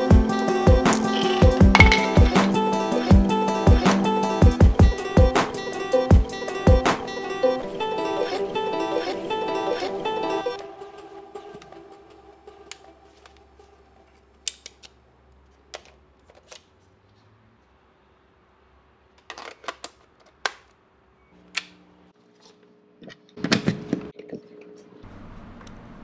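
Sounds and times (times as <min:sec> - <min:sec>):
handling noise: 0:00.9 - 0:02.5
plastic clicks: 0:14.4 - 0:16.7.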